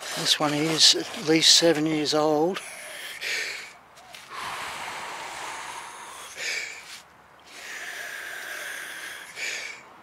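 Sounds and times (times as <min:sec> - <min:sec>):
man breathing heavily: 0:02.5 - 0:10.0.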